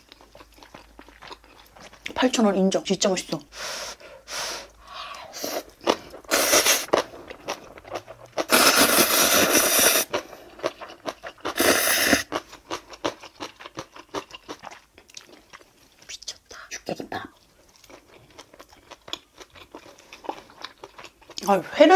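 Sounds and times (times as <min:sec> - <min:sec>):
wet chewing clicks: 0:00.0 - 0:02.2, 0:17.7 - 0:21.6
loud noodle slurping: 0:06.3 - 0:07.1, 0:08.0 - 0:10.8, 0:11.4 - 0:12.4.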